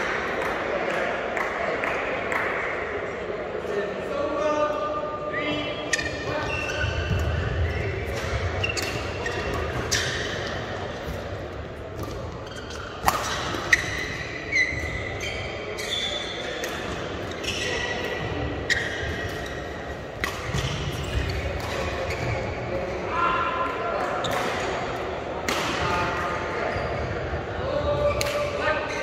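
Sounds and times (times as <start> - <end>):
shoes squeaking on court: 5.9 - 22.6, 26.6 - 27.2
racket striking shuttlecock: 12.0 - 14.2.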